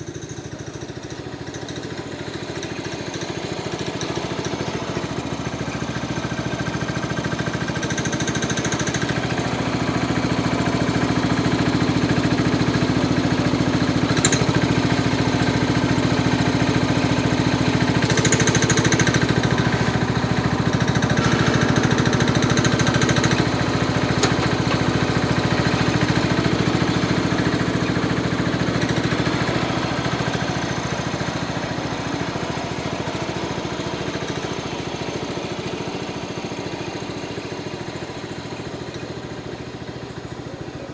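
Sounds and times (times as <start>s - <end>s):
garden tractor engine running: 0.0s - 40.9s
loader bucket dumping dirt: 9.5s - 40.4s.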